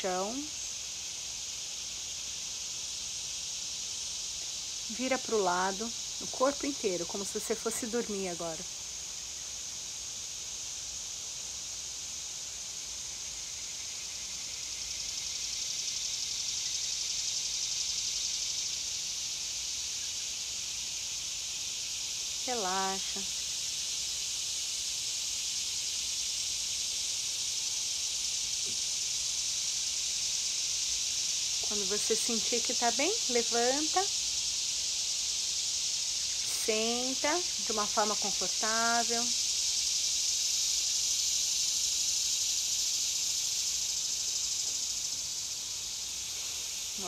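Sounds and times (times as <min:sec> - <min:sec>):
insect chorus drone: 0:00.0 - 0:47.0.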